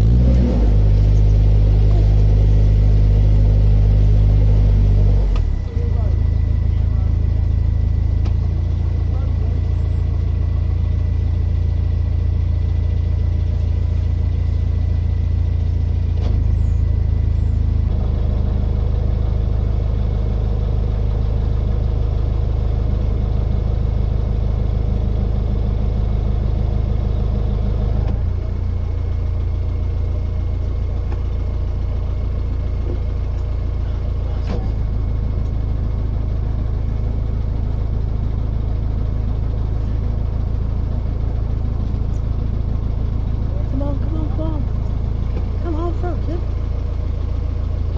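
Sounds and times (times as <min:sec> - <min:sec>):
diesel engine running: 0:00.0 - 0:47.9.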